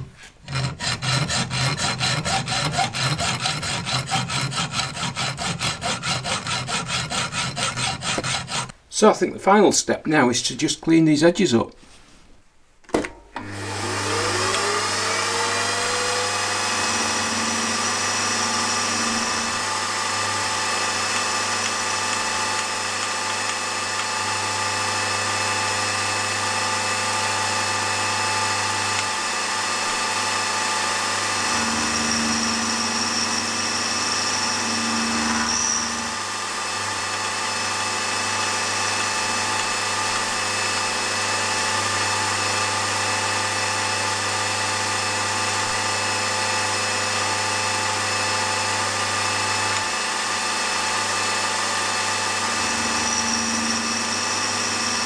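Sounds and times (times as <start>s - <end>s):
end mill cutting metal: 0.0s - 8.7s, 13.4s - 55.0s
milling machine spindle whine: 13.4s - 26.3s, 26.9s - 55.0s.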